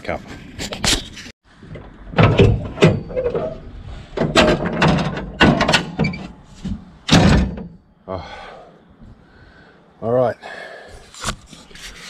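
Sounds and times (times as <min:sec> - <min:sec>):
knocks and clunks on steel: 0:01.6 - 0:07.9.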